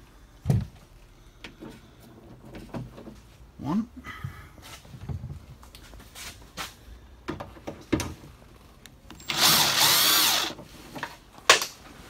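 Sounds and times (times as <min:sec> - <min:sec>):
power drill spinning: 0:09.1 - 0:10.6.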